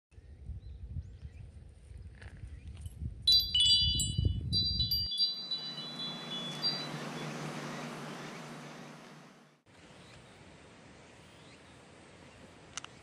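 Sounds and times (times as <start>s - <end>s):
low wind rumble on microphone: 0.1s - 8.6s
wind chime ringing: 3.3s - 9.4s.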